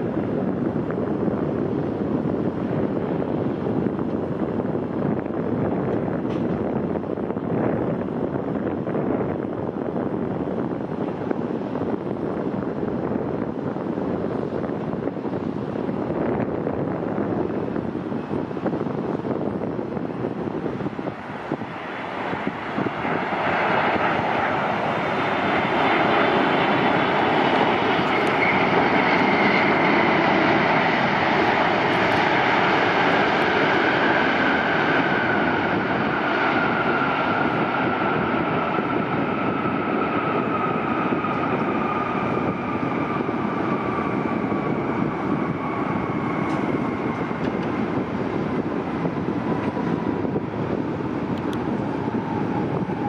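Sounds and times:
jet engines roaring on landing: 0:00.0 - 0:53.0
jet fan whine falling in pitch: 0:15.3 - 0:53.0.

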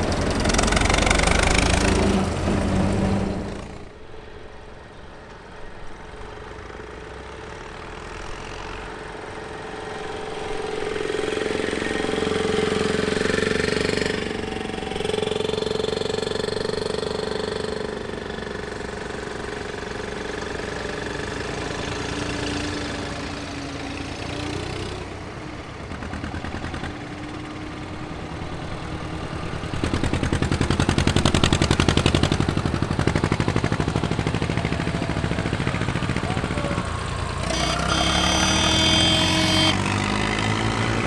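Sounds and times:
diesel tractors driving past: 0:00.0 - 0:41.0.

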